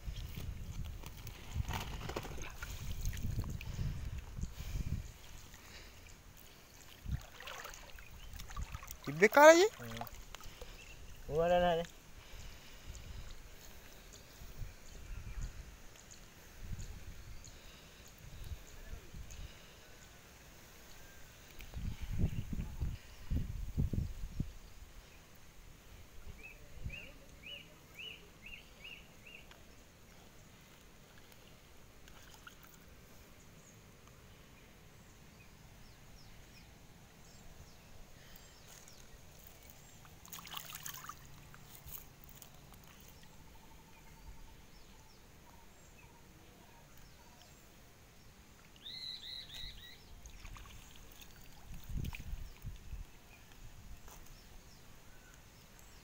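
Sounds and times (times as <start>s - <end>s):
water sloshing: 5.2s - 11.2s, 32.0s - 32.8s, 39.3s - 43.3s, 50.2s - 52.3s
bird chirping: 42.8s - 51.6s.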